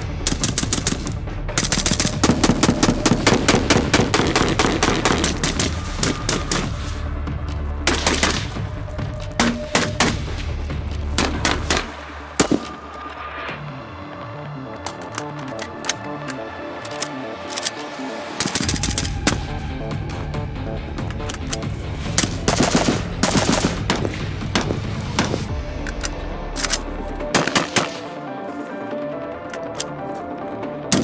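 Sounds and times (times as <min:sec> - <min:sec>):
background music: 0:00.0 - 0:31.0
rifle gunshots: 0:22.2 - 0:25.5, 0:27.3 - 0:28.0.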